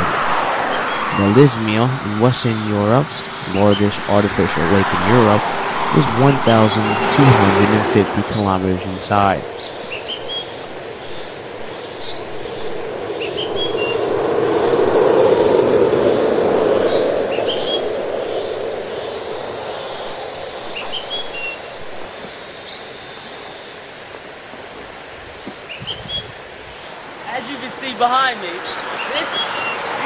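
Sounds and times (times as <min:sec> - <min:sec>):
vehicle passing by: 0:00.0 - 0:09.6, 0:12.0 - 0:20.2
small birds chirping: 0:00.0 - 0:15.1, 0:16.6 - 0:30.0.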